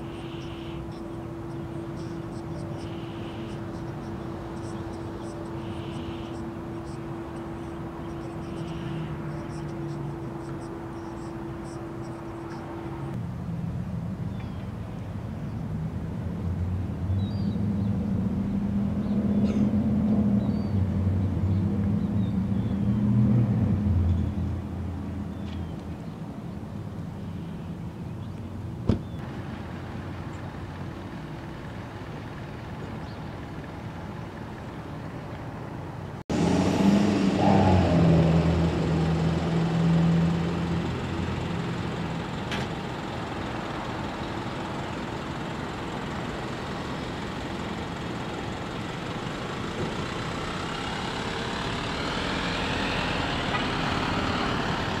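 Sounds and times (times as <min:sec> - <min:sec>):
traffic rumble: 0:00.0 - 0:55.0
truck engine humming: 0:00.0 - 0:55.0.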